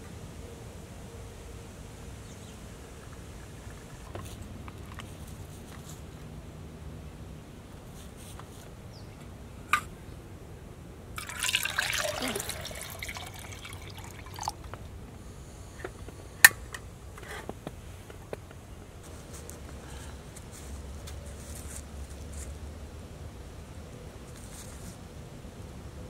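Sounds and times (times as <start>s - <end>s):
water pouring into metal pot: 11.2s - 14.7s.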